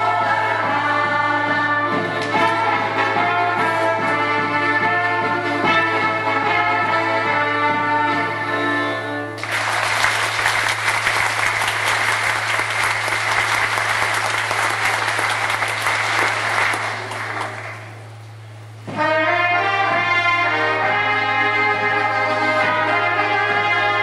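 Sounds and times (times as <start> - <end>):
folk band playing: 0.0 - 10.9, 18.8 - 24.0
audience applause: 9.4 - 18.0.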